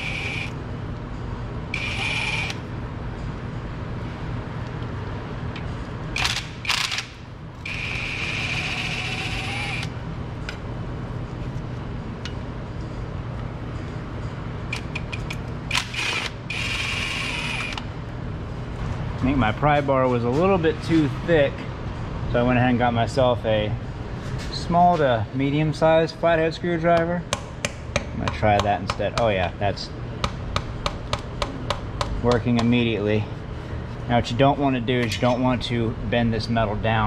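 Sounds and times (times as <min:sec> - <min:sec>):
electric ratchet whirring: 0:00.0 - 0:00.6, 0:01.7 - 0:02.6, 0:06.2 - 0:09.9, 0:15.7 - 0:17.8
steady low hum: 0:00.0 - 0:37.0.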